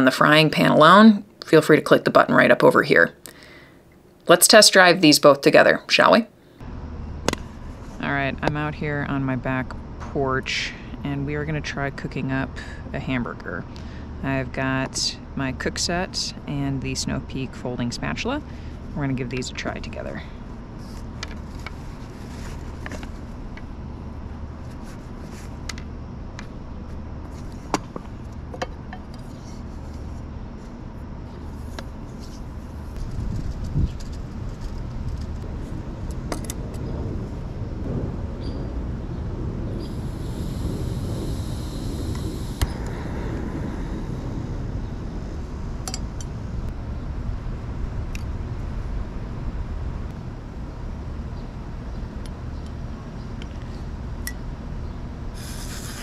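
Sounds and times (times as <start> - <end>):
steady low hum: 0.0 - 56.0
gas stove burning hiss: 39.7 - 46.7, 55.3 - 56.0.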